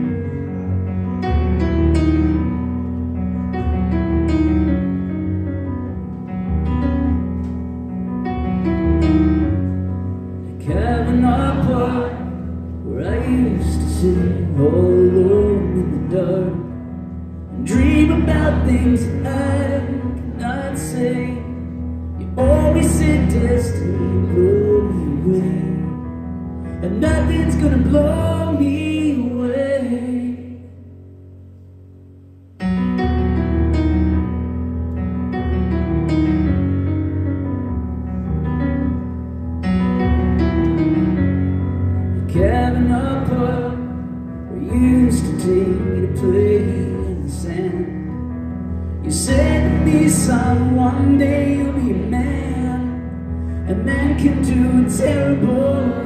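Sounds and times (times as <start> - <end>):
grand piano playing: 0.0 - 56.0
man singing: 10.5 - 26.1, 26.8 - 30.8, 42.2 - 48.2, 49.0 - 56.0.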